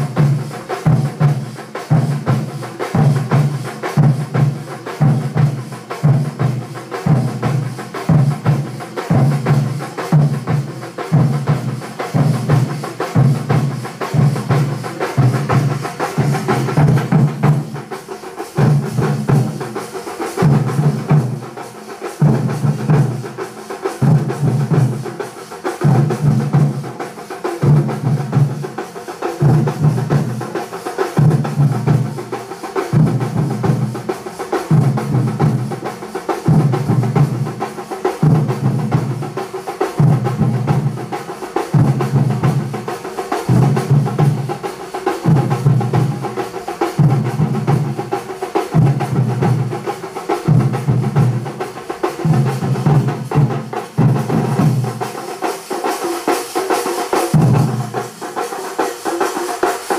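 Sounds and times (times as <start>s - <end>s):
deep drum pattern: 0.0s - 19.7s
percussion band drumming: 0.0s - 59.9s.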